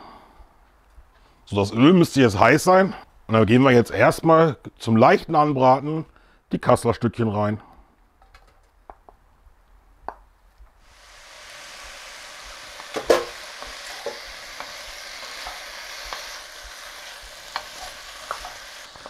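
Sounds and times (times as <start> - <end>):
meat sizzling in hot oil: 10.8 - 19.0.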